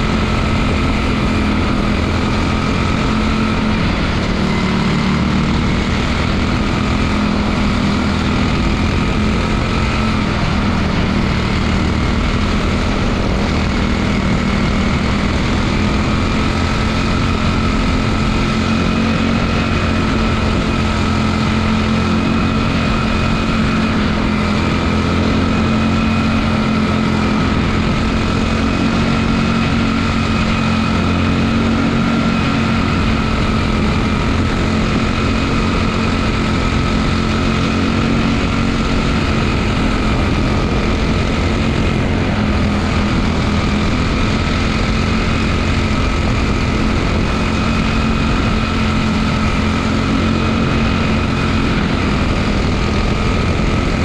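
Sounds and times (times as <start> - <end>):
other race cars running ahead: 0.0 - 54.0
race car engine running: 0.0 - 54.0.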